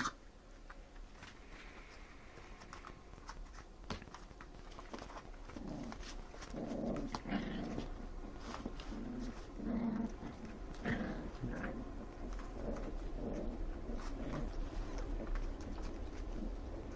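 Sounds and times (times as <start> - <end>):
paws scuffling on blanket: 1.1 - 16.9
puppies growling: 4.8 - 16.9.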